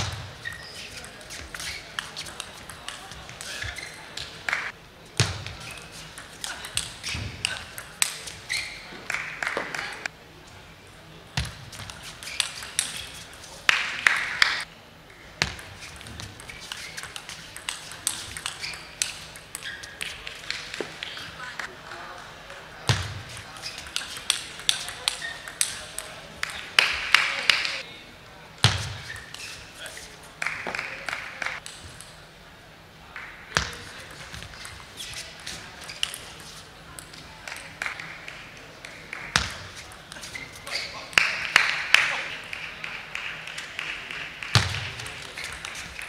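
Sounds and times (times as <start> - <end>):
table tennis ball clicking: 15.6 - 20.9, 23.8 - 27.7.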